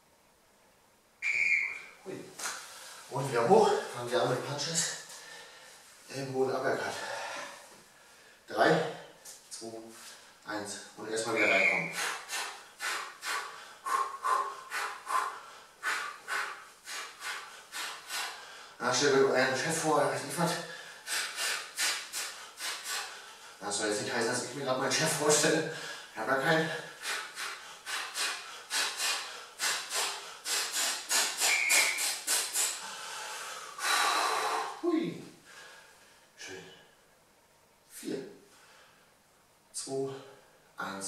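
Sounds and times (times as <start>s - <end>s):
man's sharp hissing exhalations: 11.4s - 18.8s, 20.6s - 23.6s, 25.7s - 35.9s.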